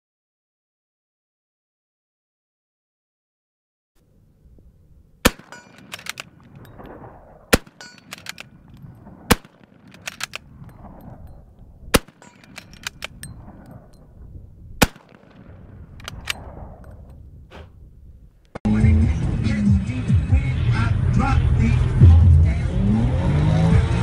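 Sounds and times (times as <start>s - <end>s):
rifle shots: 5.2s - 11.3s, 11.9s - 14.0s, 14.8s - 17.0s
clatter of small clicks: 5.5s - 6.8s, 7.8s - 8.9s, 9.7s - 11.1s, 12.1s - 13.8s, 16.0s - 16.4s.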